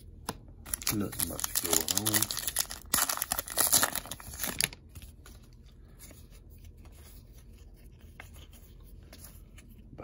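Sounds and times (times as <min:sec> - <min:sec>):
cards rustling and ticking: 0:00.3 - 0:09.9
foil wrapper crinkling: 0:00.7 - 0:05.3.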